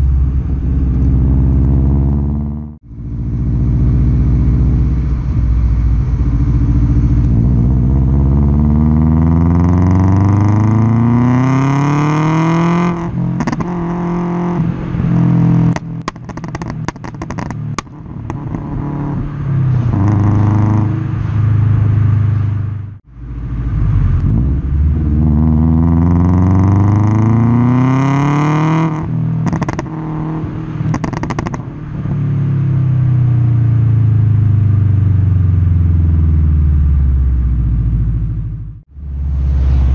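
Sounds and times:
car engine revving: 0:00.0 - 0:34.8, 0:35.5 - 0:39.9
exhaust pops and crackles: 0:15.7 - 0:18.7, 0:29.4 - 0:30.0, 0:30.9 - 0:31.7.

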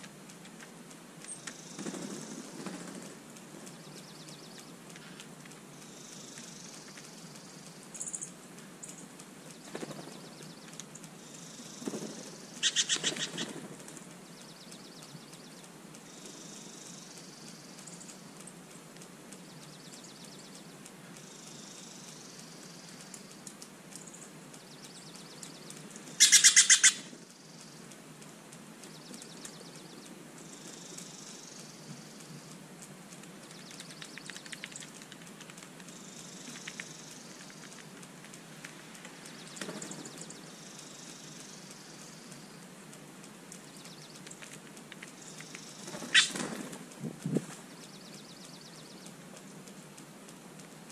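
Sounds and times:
jays calling: 0:09.7 - 0:13.7, 0:24.9 - 0:27.8, 0:43.6 - 0:46.6.

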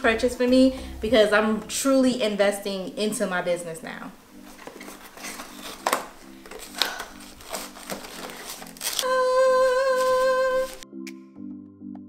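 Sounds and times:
soft background music: 0:00.0 - 0:12.0
paper wrapping crinkling: 0:04.4 - 0:10.8
long held vocal note: 0:09.0 - 0:10.8.

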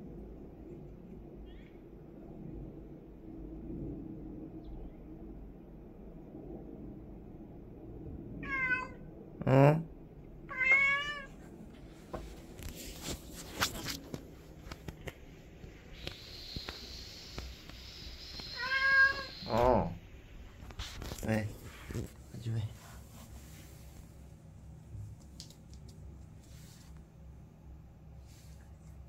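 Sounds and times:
cat meowing: 0:08.4 - 0:09.1, 0:10.5 - 0:11.4, 0:18.4 - 0:19.9.

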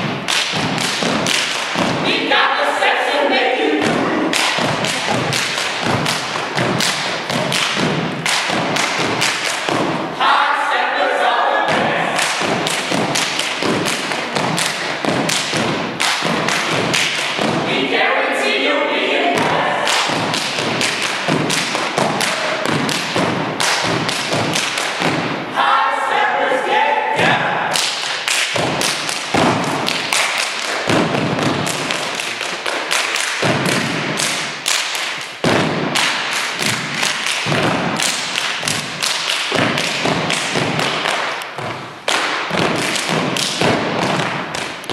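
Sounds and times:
hand claps: 0:00.0 - 0:02.0, 0:03.8 - 0:10.0, 0:12.1 - 0:17.6, 0:19.4 - 0:25.3, 0:27.7 - 0:44.9
group voices: 0:02.0 - 0:05.3, 0:10.2 - 0:12.2, 0:17.7 - 0:20.1, 0:25.5 - 0:27.7
foot stomps on wooden stage: 0:19.4 - 0:25.4, 0:28.6 - 0:30.0, 0:30.9 - 0:32.0, 0:35.4 - 0:36.0, 0:36.6 - 0:41.9, 0:42.5 - 0:44.9.

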